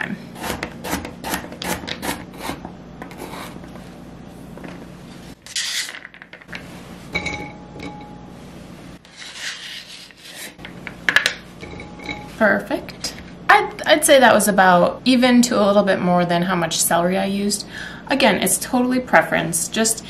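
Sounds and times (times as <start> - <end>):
knife scraping on cutting mat: 0.4 - 3.8, 5.4 - 6.0, 9.0 - 10.6
ringing clink: 7.1 - 8.3, 11.6 - 12.3.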